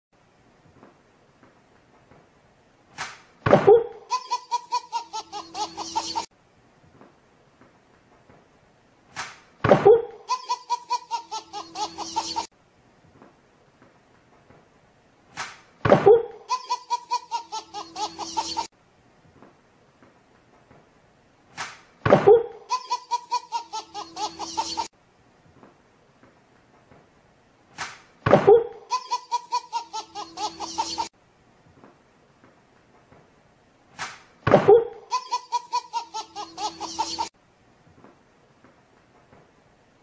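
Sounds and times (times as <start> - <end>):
baby belly laughing: 3.7 - 6.3, 9.9 - 12.5, 16.1 - 18.7, 22.3 - 24.9, 28.5 - 31.1, 34.7 - 37.3.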